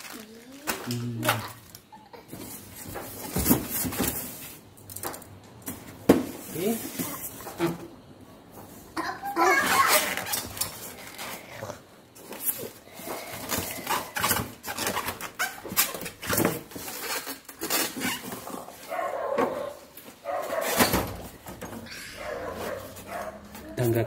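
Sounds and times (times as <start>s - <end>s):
polystyrene foam squeaking: 0.0s - 2.2s, 9.4s - 11.5s, 13.6s - 18.8s.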